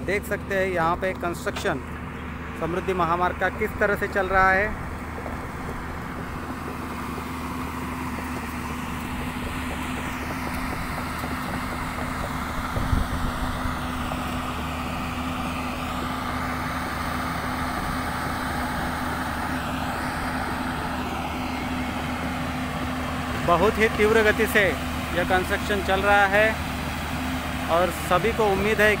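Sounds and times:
wind and road noise: 0.0 - 29.0
motorbike engine running: 3.8 - 15.7.

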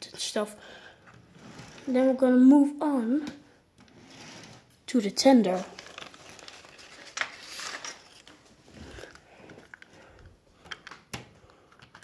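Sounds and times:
paper packaging rustling: 5.4 - 11.0.

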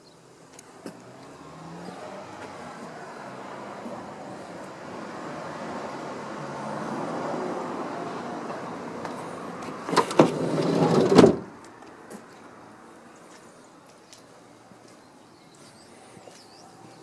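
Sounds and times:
sliding door clicks: 9.9 - 11.5
sliding door rolling and slamming: 9.9 - 11.5.

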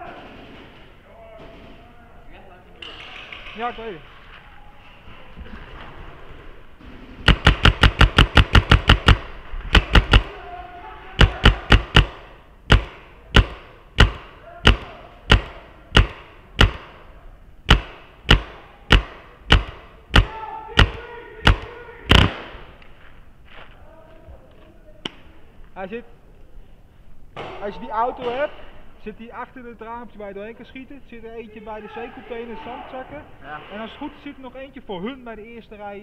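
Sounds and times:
paintball marker firing: 7.2 - 10.3, 11.2 - 22.8.

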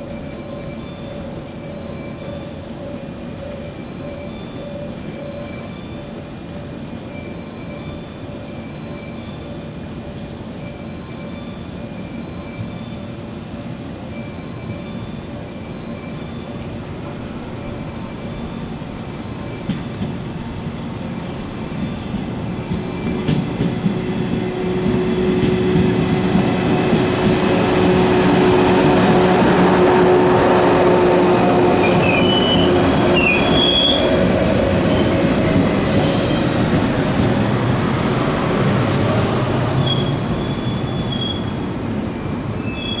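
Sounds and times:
train wheels rumbling on rail: 0.0 - 43.0
brake squeals: 31.8 - 34.2, 39.8 - 41.6, 42.6 - 43.0
brief air hisses: 35.9 - 36.4.

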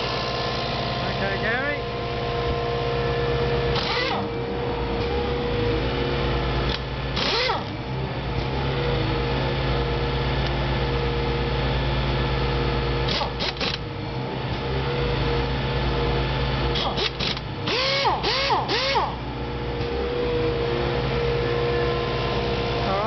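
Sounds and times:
diesel engine idling: 0.0 - 23.0
pneumatic impact wrench bursts: 3.7 - 4.3, 6.7 - 7.7, 13.0 - 13.8, 16.7 - 19.2.

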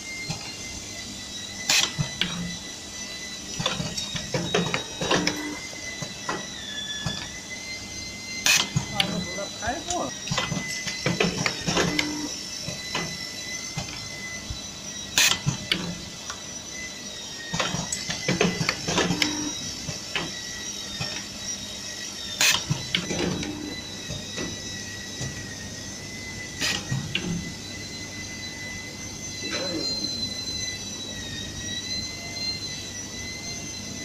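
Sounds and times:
steady high whine: 0.0 - 34.0
pneumatic actuators clacking: 1.6 - 2.5, 8.4 - 9.2, 10.3 - 13.2, 15.1 - 16.4, 17.5 - 20.4, 22.4 - 24.6, 26.6 - 27.4.

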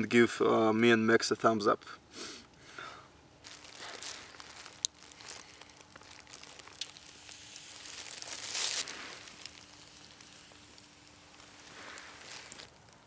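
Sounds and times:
rustling hiss: 2.1 - 13.0
campfire crackling and popping: 3.4 - 13.0.

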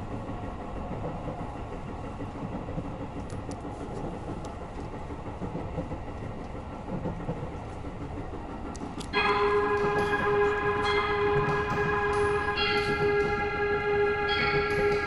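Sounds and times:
train rumble and hiss: 0.0 - 15.0
loud held tone: 9.2 - 15.0.

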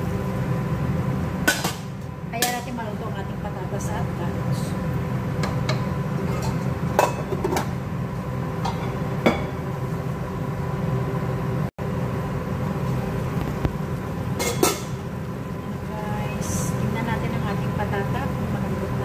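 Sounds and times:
low mechanical hum: 0.0 - 19.0
cookware clinking: 5.4 - 7.7, 8.6 - 9.6, 14.4 - 15.0.

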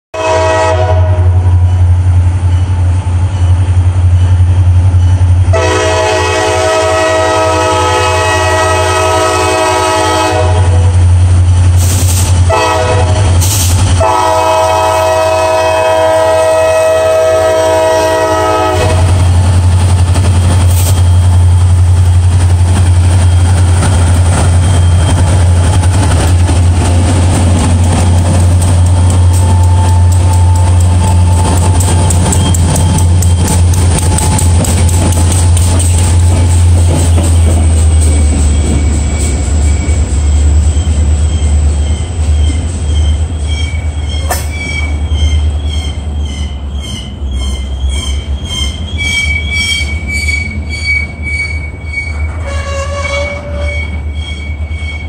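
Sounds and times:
locomotive air horn: 0.2 - 1.6, 5.5 - 11.0, 12.4 - 19.2, 29.2 - 31.8, 51.4 - 54.9
train wheels clattering on rails: 11.4 - 16.2, 17.2 - 55.0.

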